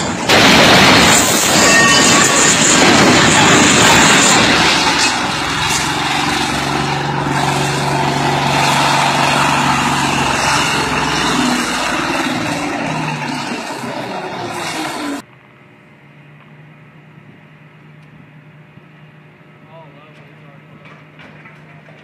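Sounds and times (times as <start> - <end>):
heavy truck engine running: 0.0 - 15.3.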